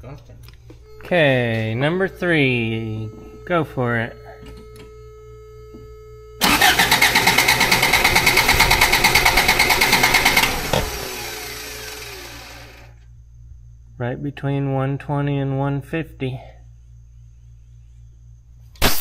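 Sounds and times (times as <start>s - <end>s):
engine cranking by starter: 6.4s - 12.9s.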